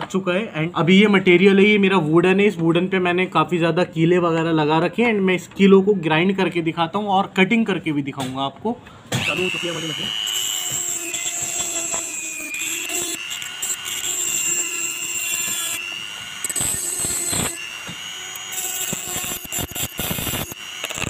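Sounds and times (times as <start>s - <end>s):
rotary tool high whine: 9.2s - 21.0s
grinding wheel scraping metal: 10.3s - 15.8s, 16.4s - 21.0s.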